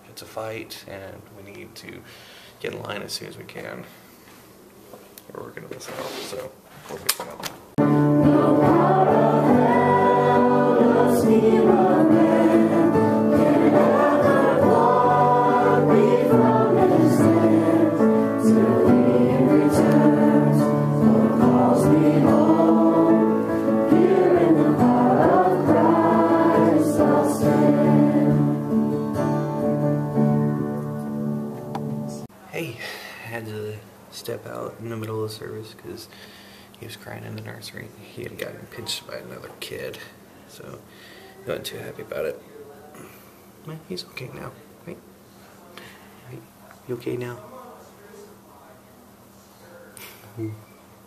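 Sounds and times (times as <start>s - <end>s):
choir singing gospel music: 7.8s - 31.6s
held instrumental notes: 7.8s - 32.3s.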